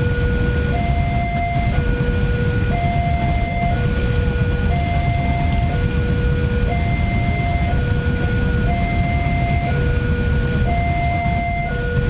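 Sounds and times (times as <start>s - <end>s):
freight train rumbling: 0.0s - 12.0s
level crossing two-tone alarm: 0.0s - 12.0s.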